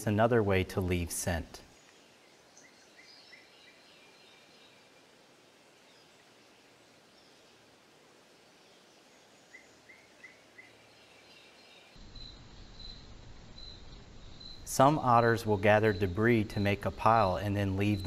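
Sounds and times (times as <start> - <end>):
steady hiss: 0.0 - 18.0
crickets chirping: 1.2 - 18.0
bird chirps: 1.7 - 5.1, 8.5 - 18.0.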